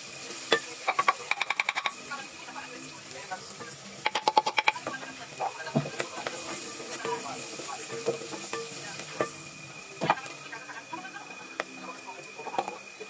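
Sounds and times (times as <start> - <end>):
food sizzling: 0.0 - 13.0
spoon clicking against pot: 0.5 - 1.9, 4.0 - 4.8.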